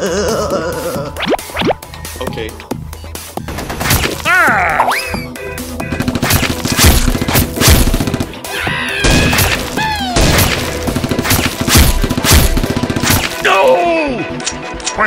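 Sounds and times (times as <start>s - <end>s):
background music: 0.0s - 15.0s
rapid gunshots: 3.4s - 4.2s, 5.8s - 13.6s.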